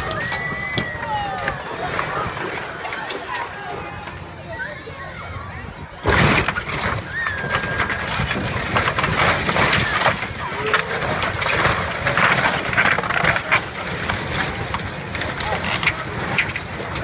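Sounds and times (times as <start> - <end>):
excavator engine rumbling: 6.0 - 17.0
timber cracking and breaking: 6.0 - 17.0.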